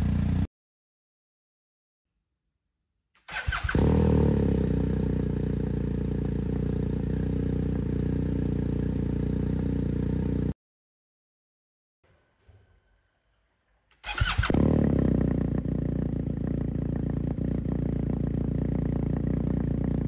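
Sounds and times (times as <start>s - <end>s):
motorcycle engine idling: 0.0s - 0.5s, 3.6s - 10.5s, 14.2s - 20.0s.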